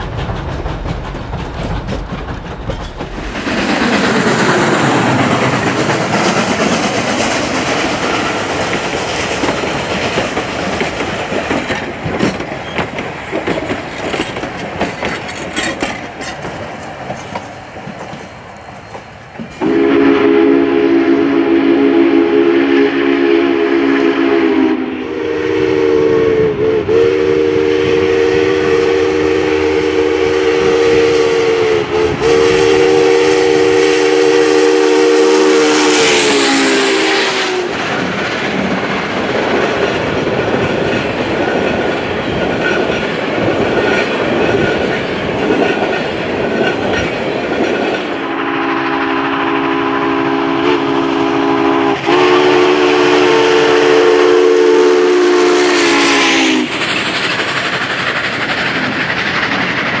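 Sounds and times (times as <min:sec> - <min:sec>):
train cars rumbling and clacking: 0:00.0 - 0:25.6, 0:26.4 - 1:00.0
steam locomotive chime whistle: 0:19.6 - 0:37.7, 0:48.2 - 0:56.7.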